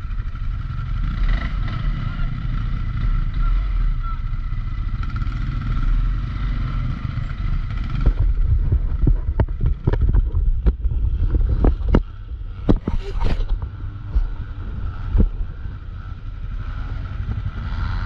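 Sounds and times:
atv engine rumbling: 0.0s - 18.0s
sharp knocks and rattles: 7.2s - 14.4s.

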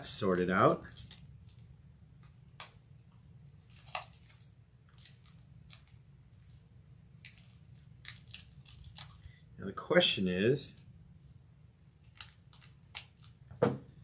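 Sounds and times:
plastic wrap crinkling: 0.0s - 1.7s, 3.6s - 6.6s, 7.2s - 9.4s, 12.0s - 13.4s
low steady hum: 0.0s - 14.0s.

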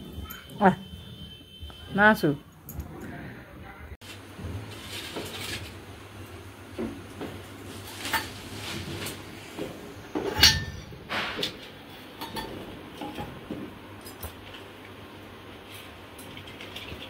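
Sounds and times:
metal plates clinking: 10.1s - 14.4s.

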